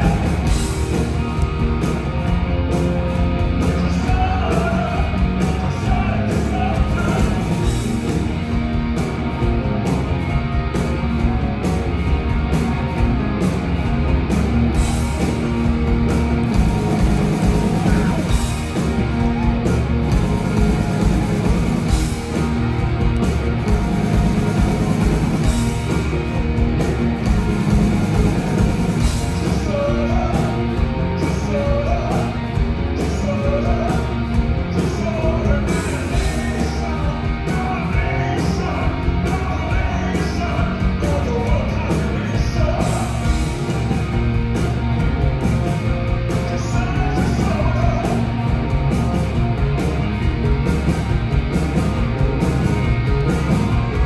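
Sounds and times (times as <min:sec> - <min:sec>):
man singing: 0:00.0 - 0:00.5, 0:03.7 - 0:07.5, 0:29.4 - 0:32.4, 0:33.0 - 0:43.2, 0:46.4 - 0:48.3
live rock band playing: 0:00.0 - 0:54.0.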